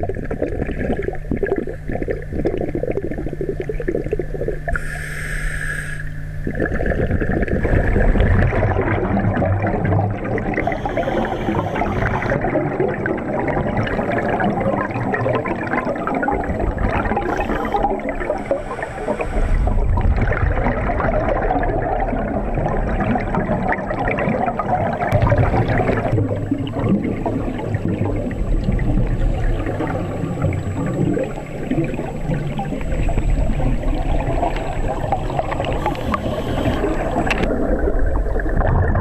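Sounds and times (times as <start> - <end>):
underwater bubbling and gurgling: 0.0 - 39.0
regulator breathing hisses: 4.7 - 6.2, 10.6 - 12.4, 17.2 - 19.8, 35.8 - 37.3.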